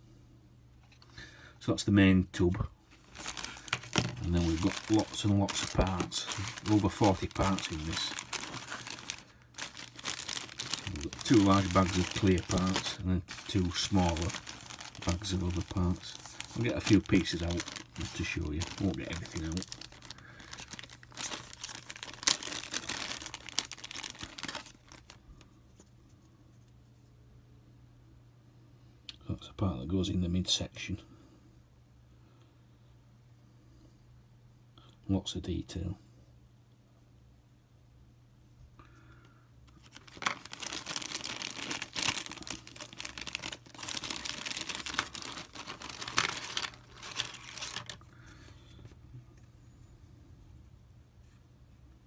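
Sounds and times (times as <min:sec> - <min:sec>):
plastic bag crinkling: 0:02.4 - 0:25.2, 0:39.7 - 0:48.2.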